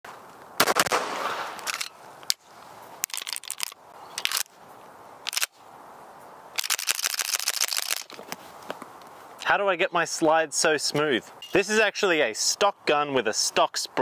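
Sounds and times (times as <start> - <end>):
pistol shots: 0.6 - 1.7.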